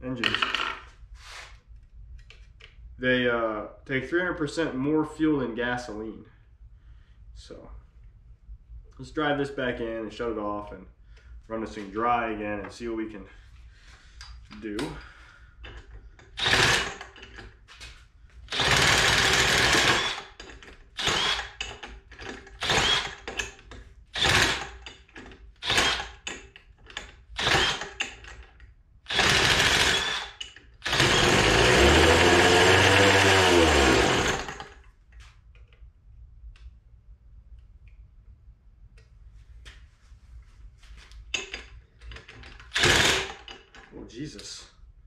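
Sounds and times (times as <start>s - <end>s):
leaf blower engine revving: 30.9s - 34.5s.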